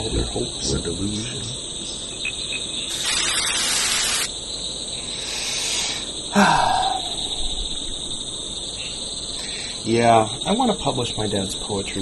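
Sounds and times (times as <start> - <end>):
static hiss: 0.0 - 6.4
crickets chirring: 0.0 - 12.0.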